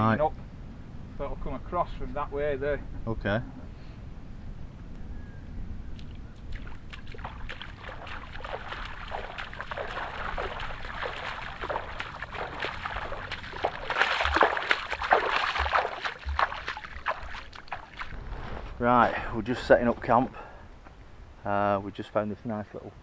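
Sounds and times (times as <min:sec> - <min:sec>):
feet wading through shallow water: 0:05.9 - 0:18.8.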